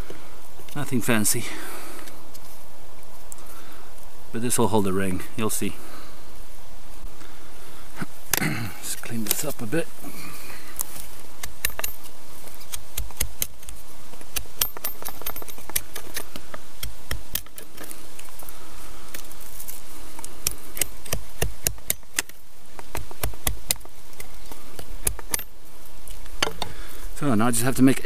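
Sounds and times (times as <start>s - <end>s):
blade carving wood: 11.4s - 18.3s, 19.1s - 25.5s.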